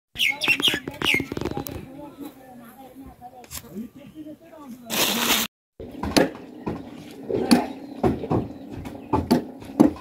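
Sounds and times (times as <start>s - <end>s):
sharp knocks: 5.9s - 10.0s.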